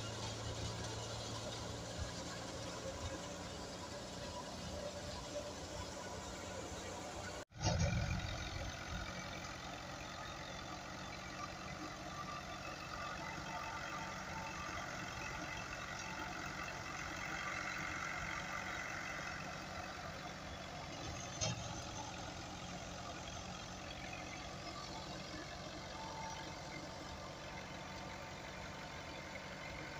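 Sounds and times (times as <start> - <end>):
tractor diesel engine: 0.0 - 29.9.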